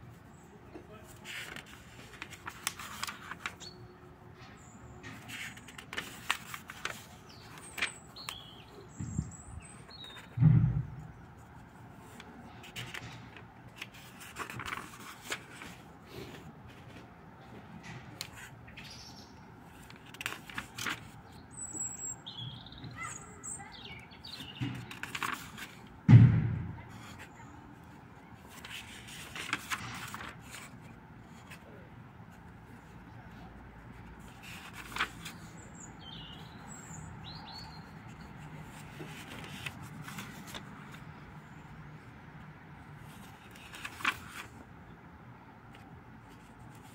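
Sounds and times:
paper pages rustling: 0:01.0 - 0:03.8, 0:05.0 - 0:08.7, 0:09.6 - 0:10.4, 0:11.3 - 0:19.0, 0:19.6 - 0:21.3, 0:24.3 - 0:25.9, 0:26.9 - 0:31.6, 0:33.8 - 0:37.0, 0:37.6 - 0:41.1, 0:43.0 - 0:44.7, 0:45.7 - 0:46.9
dull thump: 0:10.3 - 0:11.0, 0:26.1 - 0:26.8.

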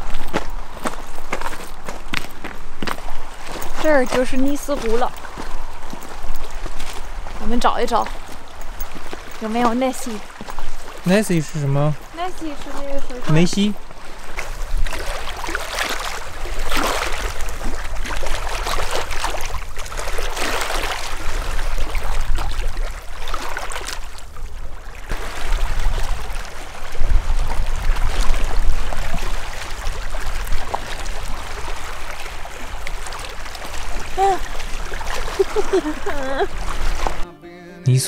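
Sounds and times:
water rushing and splashing: 0:00.0 - 0:37.3
wind on microphone: 0:25.1 - 0:32.2.

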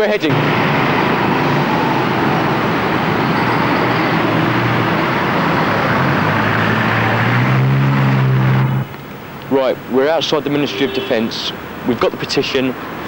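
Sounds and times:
cars driving past: 0:00.0 - 0:13.0
vehicle engine low drone: 0:00.2 - 0:10.0.

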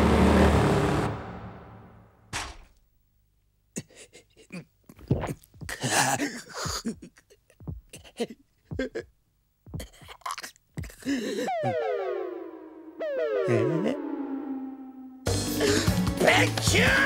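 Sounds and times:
man panting and grunting: 0:03.8 - 0:09.1, 0:09.7 - 0:11.6, 0:15.5 - 0:16.1.

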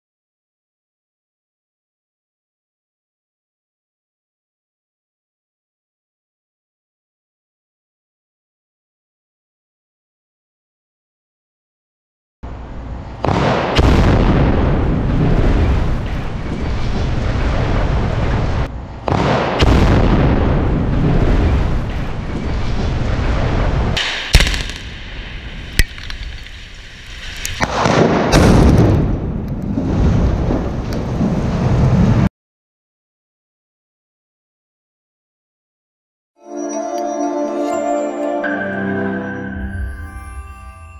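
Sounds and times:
low rumble and crashing: 0:13.1 - 0:32.3
explosive charges cracking: 0:13.2 - 0:32.3.

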